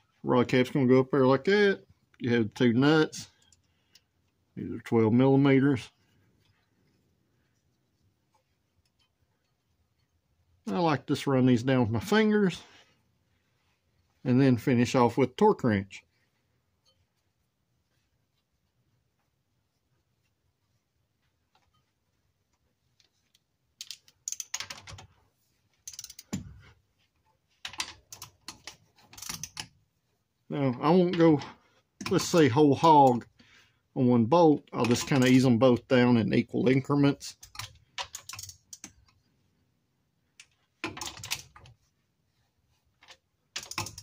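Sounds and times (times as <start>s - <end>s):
ratchet wrench clicking: 23.8s - 24.7s, 25.9s - 26.4s.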